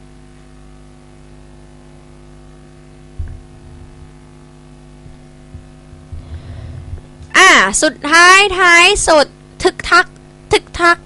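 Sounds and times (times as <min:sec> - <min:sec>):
electrical mains hum: 0:00.0 - 0:11.0
low thumps and rumbles: 0:03.1 - 0:04.3, 0:04.9 - 0:07.4.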